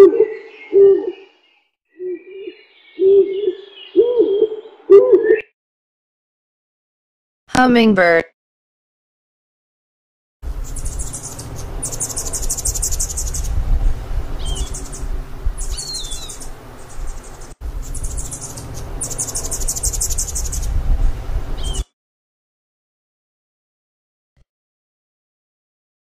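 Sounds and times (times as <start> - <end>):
low hum: 10.4 - 21.8
hummingbird chirps: 10.5 - 21.8
insects trilling: 10.6 - 13.6, 17.1 - 20.7.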